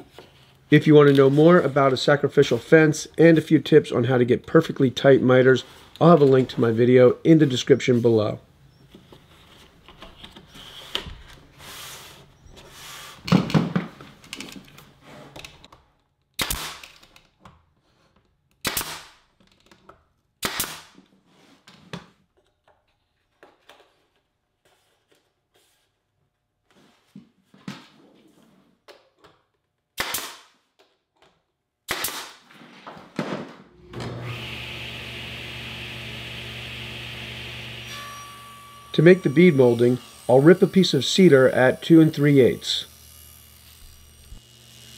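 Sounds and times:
nail gun firing into wood: 0:16.4 - 0:17.1, 0:18.6 - 0:19.2, 0:20.4 - 0:21.0, 0:30.0 - 0:30.6, 0:31.9 - 0:32.4.

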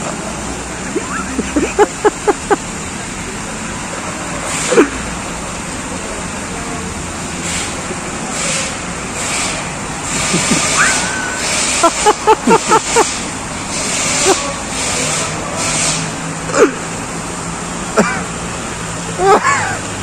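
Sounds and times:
cars passing: 0:00.0 - 0:20.0
fountain water rushing: 0:00.0 - 0:20.0.

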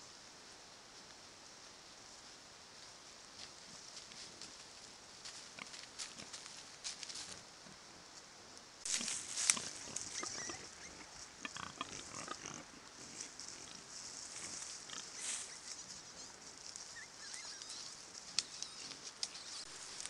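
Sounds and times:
leaves rustling: 0:00.0 - 0:20.0
pig grunts and squeaks: 0:08.9 - 0:13.8, 0:14.4 - 0:16.0.

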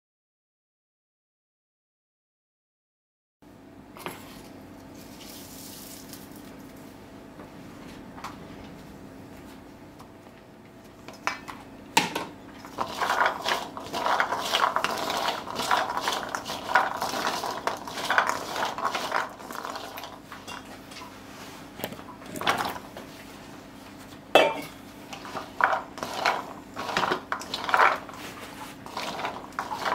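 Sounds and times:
chickpeas stirred in metal bowl: 0:12.6 - 0:20.8, 0:25.1 - 0:29.9.

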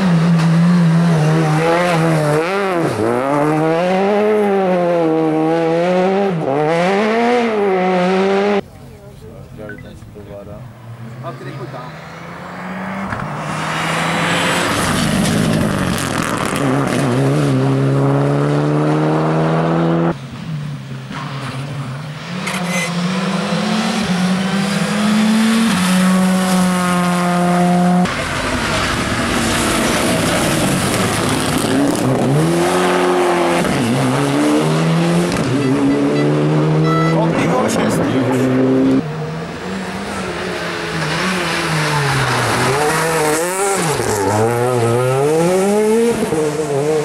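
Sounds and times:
rally cars revving past: 0:00.0 - 0:08.6, 0:10.6 - 0:47.0.

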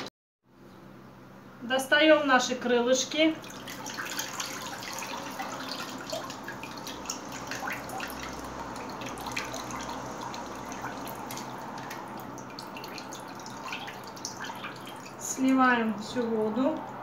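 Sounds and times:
water dripping and trickling: 0:03.4 - 0:16.8.

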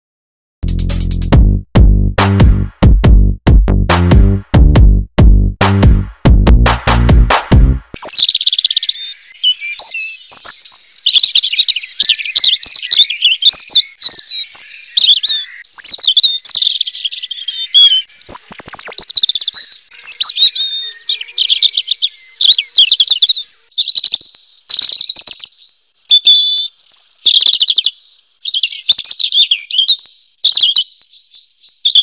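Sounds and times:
bird warbling song: 0:08.0 - 0:32.0.

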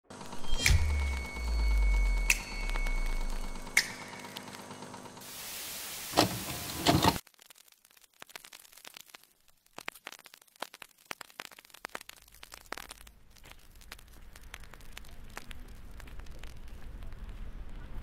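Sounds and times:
low steady rumble: 0:00.5 - 0:03.8
burst of hiss-like noise: 0:05.2 - 0:07.2.

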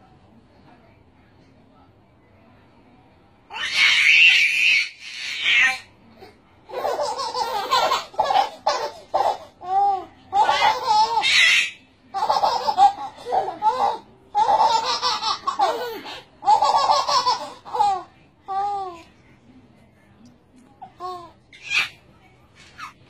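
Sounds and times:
high-pitched baby squeal: 0:03.5 - 0:05.8
babies laughing: 0:06.7 - 0:18.9.

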